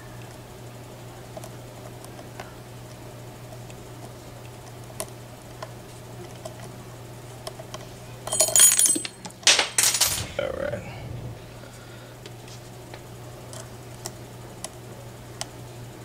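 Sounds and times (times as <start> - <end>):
metal scraping and rattling in keyway: 8.3 - 10.4.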